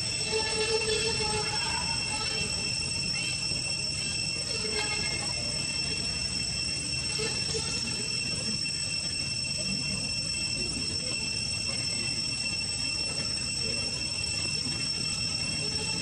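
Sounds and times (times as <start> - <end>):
high-pitched insect drone: 0.0 - 16.0.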